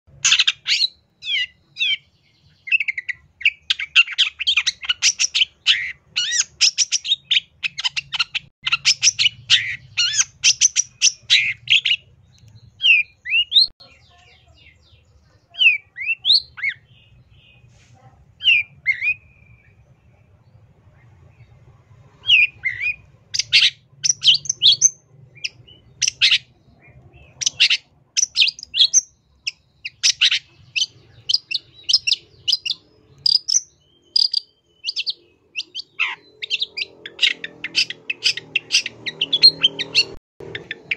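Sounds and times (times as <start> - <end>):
bird singing chattering notes: 0.1 - 17.7, 22.2 - 40.9
bird sweeping calls: 34.2 - 40.9.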